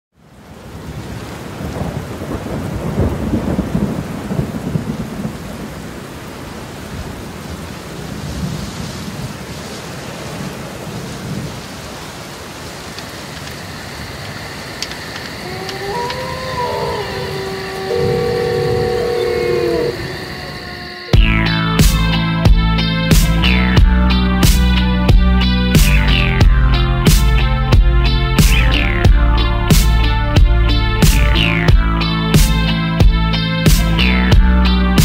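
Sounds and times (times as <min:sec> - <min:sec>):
heavy rain: 0:00.1 - 0:35.0
rolling thunder: 0:01.0 - 0:05.8, 0:15.7 - 0:21.8
faint steady high tones: 0:14.5 - 0:21.2.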